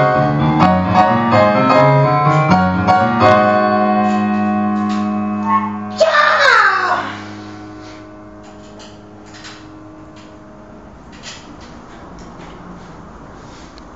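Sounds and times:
falling sweep of piano notes: 0:00.0 - 0:11.2
piano chord ringing: 0:00.0 - 0:12.0.

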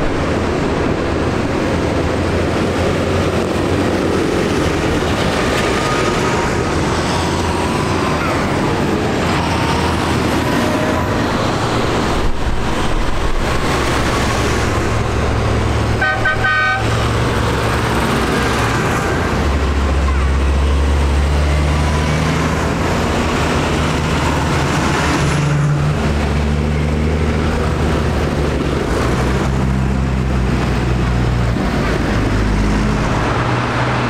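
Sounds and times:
tractor diesel engines passing: 0:00.0 - 0:34.0
horn short pulses: 0:16.0 - 0:17.0.

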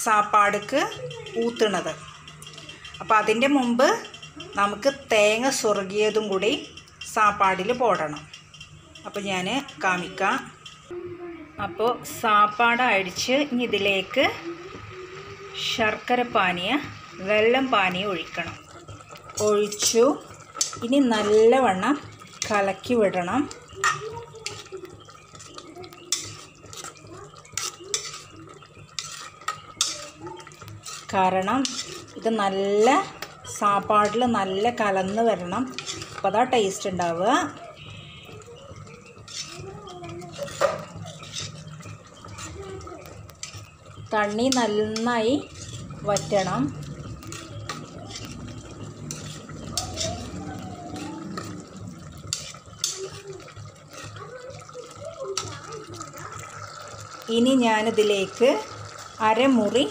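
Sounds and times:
metal spoon stirring rice in pot: 0:00.0 - 0:10.9, 0:12.1 - 0:59.9
syrup bubbling in pressure cooker: 0:00.0 - 0:59.9
spoon clinking against pot: 0:17.8 - 0:54.8
spoon clicking against pot: 0:23.6 - 0:32.3.

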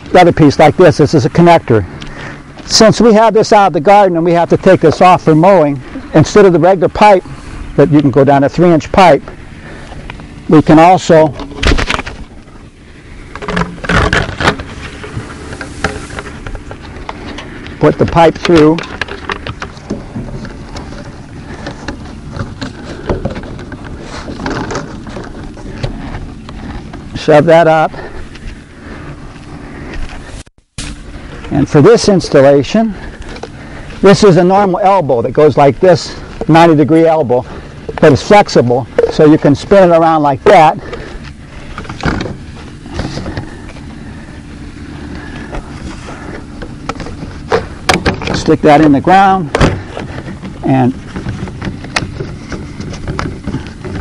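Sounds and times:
steady low rumble: 0:00.0 - 0:54.0
plastic pipe clicking and scraping: 0:13.3 - 0:27.2, 0:37.8 - 0:39.5, 0:40.4 - 0:43.9, 0:45.1 - 0:54.0.

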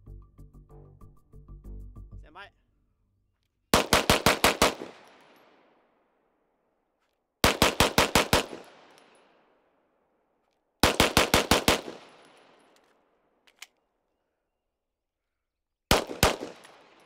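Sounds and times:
pistol shots: 0:03.7 - 0:05.8, 0:07.4 - 0:09.3, 0:10.8 - 0:12.8, 0:15.9 - 0:17.0.

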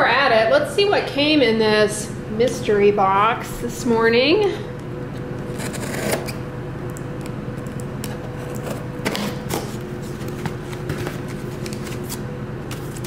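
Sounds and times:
steady low hum: 0:00.0 - 0:13.0
box cutter slicing tape: 0:05.6 - 0:06.4.

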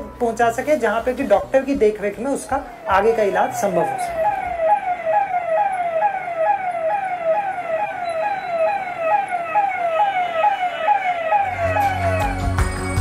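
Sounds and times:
ambulance siren: 0:00.0 - 0:13.0.

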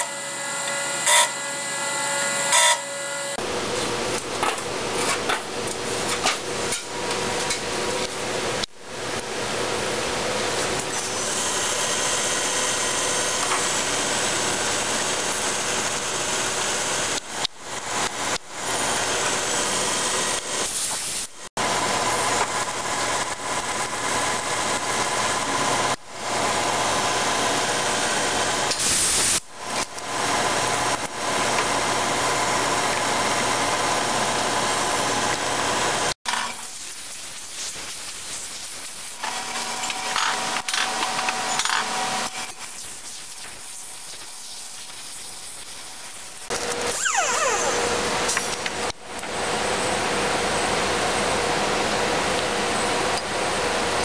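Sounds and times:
milling machine drilling metal: 0:00.0 - 0:03.4, 0:36.3 - 0:46.6
belt sander motor running: 0:36.3 - 0:46.5.

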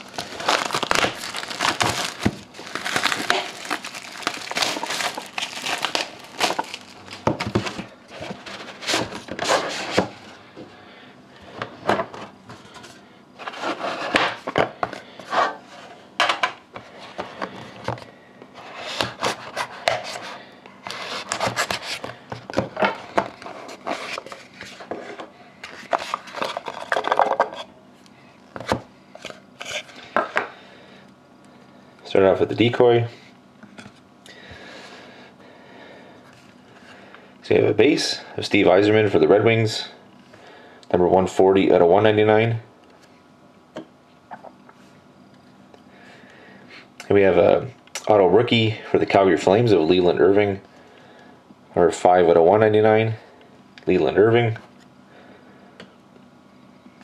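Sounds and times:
packaging crinkling and tearing: 0:00.0 - 0:09.7.

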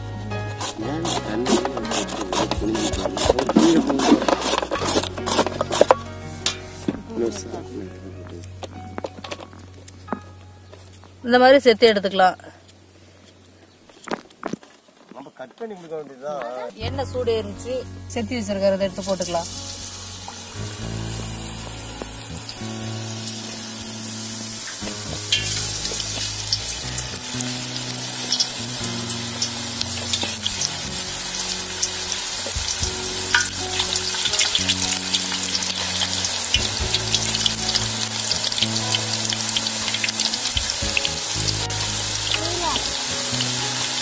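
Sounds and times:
background music low notes: 0:00.0 - 0:13.5, 0:16.4 - 0:44.0
chips sizzling in hot oil: 0:00.4 - 0:06.8, 0:18.9 - 0:44.0.

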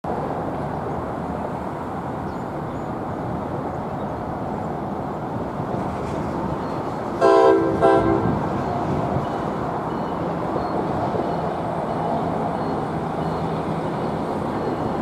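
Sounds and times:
train rumbling: 0:00.1 - 0:15.0
train horn chord blast: 0:07.2 - 0:08.4.

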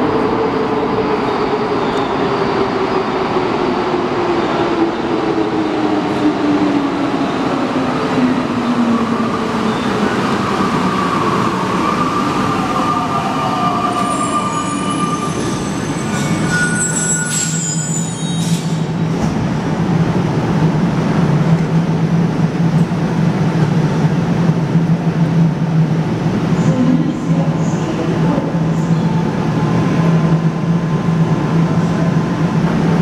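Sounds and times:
metro train rumble: 0:00.0 - 0:33.0
high-pitched brake squealing: 0:12.9 - 0:18.9.

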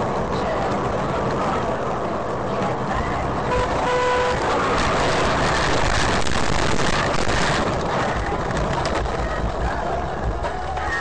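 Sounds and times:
car rumbling across grass: 0:00.0 - 0:10.6
car horn: 0:03.4 - 0:05.4.

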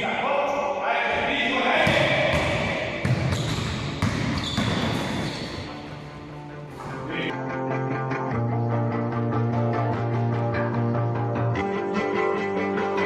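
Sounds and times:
basketball bouncing on wooden floor: 0:01.8 - 0:05.8.

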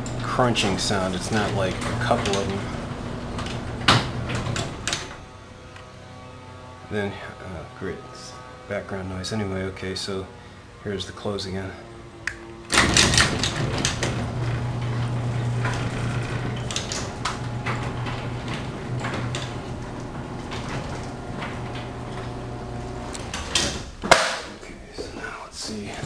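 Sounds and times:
garage door rattling on rail: 0:00.0 - 0:05.6, 0:12.7 - 0:24.8
garage door opener crunch: 0:00.0 - 0:25.0
garage door opener motor humming: 0:00.0 - 0:26.0.

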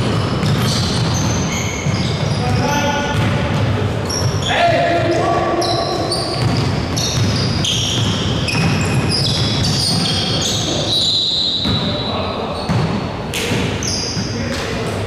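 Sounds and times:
basketball bouncing: 0:00.0 - 0:04.5, 0:06.1 - 0:11.0, 0:11.6 - 0:11.9, 0:12.6 - 0:14.7
gym crowd noise: 0:00.0 - 0:15.0
sneakers squeaking: 0:00.0 - 0:15.0.

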